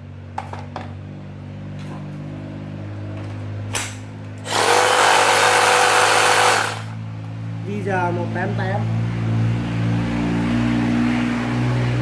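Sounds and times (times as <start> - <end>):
reciprocating saw whirring: 4.4 - 7.0.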